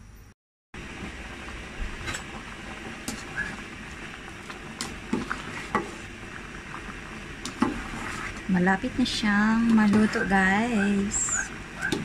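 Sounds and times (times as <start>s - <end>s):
water boiling and bubbling: 0.8s - 12.0s.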